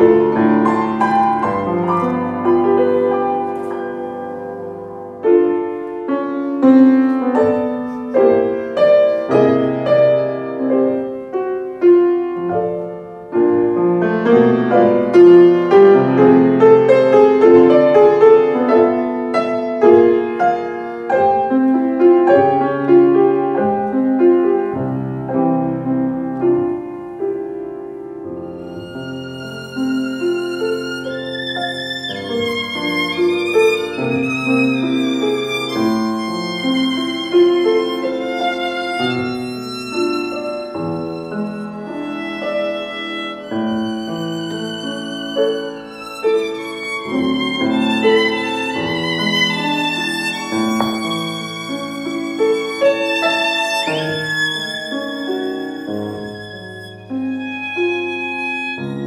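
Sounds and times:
piano notes and chords: 0:00.0 - 0:59.0
violin with vibrato: 0:28.4 - 0:59.0.

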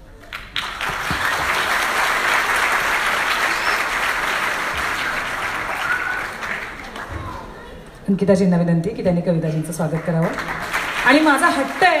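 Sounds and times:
audience clapping: 0:00.1 - 0:07.5, 0:09.8 - 0:12.0.

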